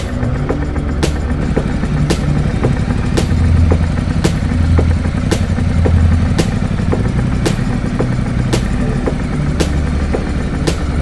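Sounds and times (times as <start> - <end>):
motorcycle engine humming: 0.0 - 11.0
sharp ticking: 0.0 - 11.0.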